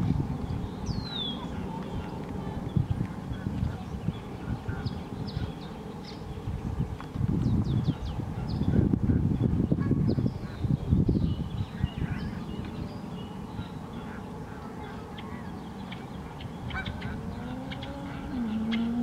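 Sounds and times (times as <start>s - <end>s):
wind buffeting microphone: 0.0s - 19.0s
bird calls and chirps: 0.4s - 19.0s
ducks quacking: 16.7s - 19.0s.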